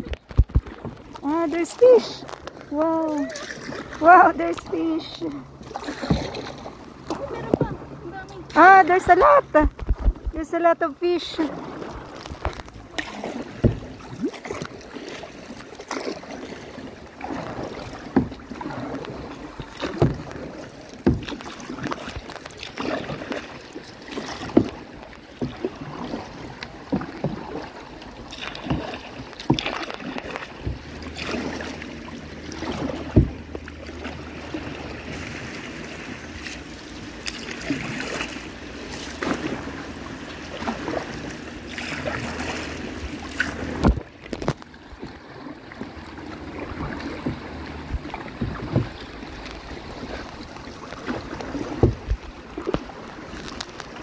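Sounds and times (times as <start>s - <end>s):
lapping water: 0.0s - 54.0s
paddle splashing in water: 0.0s - 54.0s
wind: 0.0s - 54.0s.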